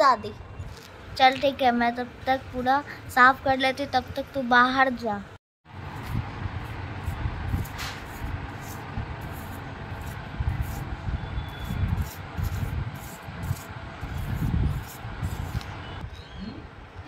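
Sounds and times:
broom brushing paper floor: 5.9 - 10.9, 12.0 - 15.7.

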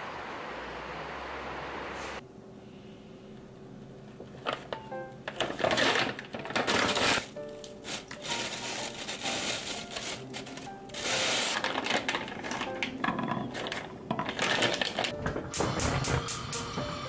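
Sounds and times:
scraping and shuffling: 4.1 - 15.5
kitchen handling noises: 4.2 - 16.9
soft background music: 4.7 - 17.0.

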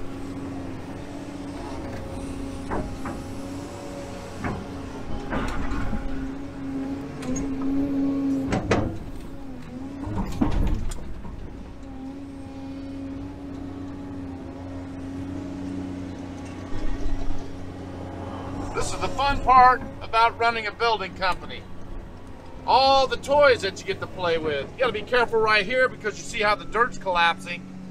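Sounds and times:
excavator diesel engine running: 0.0 - 27.9
metal clanks and knocks: 1.7 - 7.8, 8.4 - 11.9.

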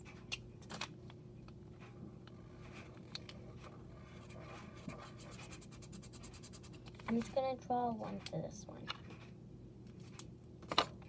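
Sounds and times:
marker scratching on paper: 3.6 - 7.4.

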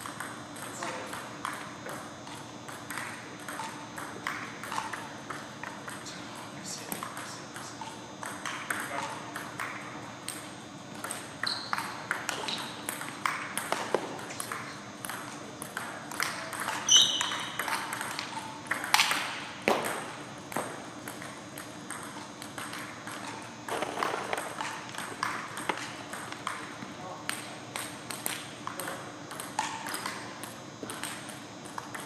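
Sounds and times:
table tennis ball clicking: 6.9 - 32.0.

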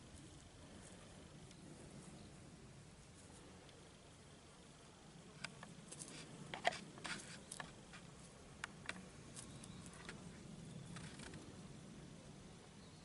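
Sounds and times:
kittens scuffling in dry grass: 5.5 - 11.8.

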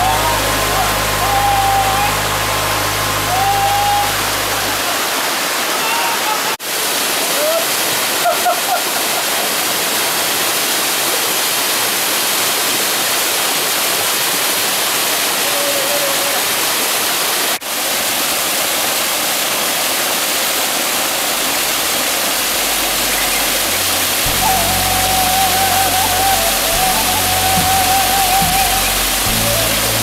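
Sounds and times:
low music notes: 0.0 - 5.0, 22.5 - 30.0
mountain stream rushing: 0.0 - 30.0.

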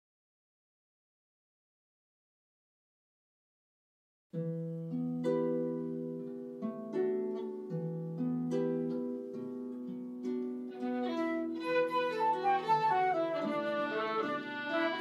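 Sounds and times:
fiddle melody: 10.6 - 15.0
flute melody: 10.7 - 15.0.

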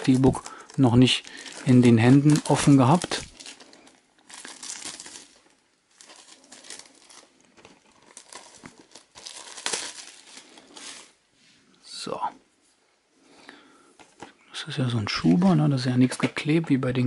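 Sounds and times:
plastic packaging crinkling: 0.0 - 11.2.

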